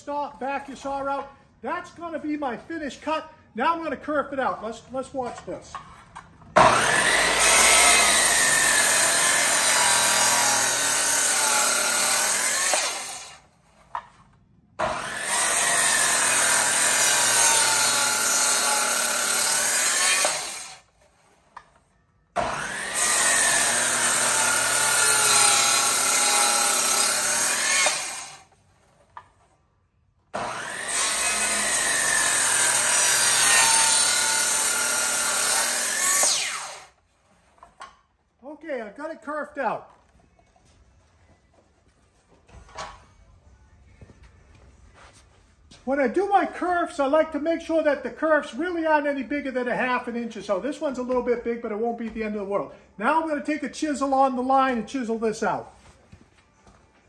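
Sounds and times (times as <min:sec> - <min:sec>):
circular saw cutting wood: 0:06.6 - 0:14.0, 0:14.8 - 0:21.7, 0:22.4 - 0:28.5, 0:30.4 - 0:37.0.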